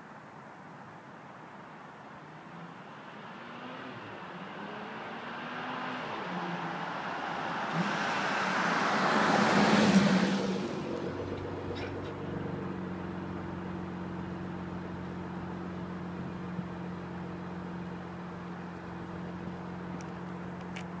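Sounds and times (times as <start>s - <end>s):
car passing by: 2.4s - 12.7s
low engine hum: 4.3s - 21.0s.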